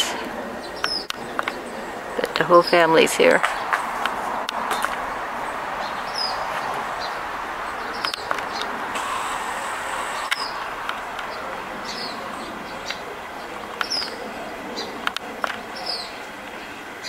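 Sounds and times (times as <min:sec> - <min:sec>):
birds chirping: 0:00.0 - 0:17.0
steady background hiss: 0:00.0 - 0:17.0
sharp clicks: 0:00.8 - 0:01.6, 0:08.0 - 0:09.2, 0:10.2 - 0:11.4, 0:15.0 - 0:15.6.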